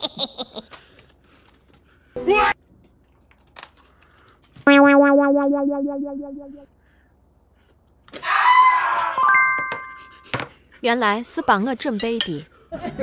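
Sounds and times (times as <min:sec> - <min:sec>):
pulsing synthesizer note: 0:04.7 - 0:06.6.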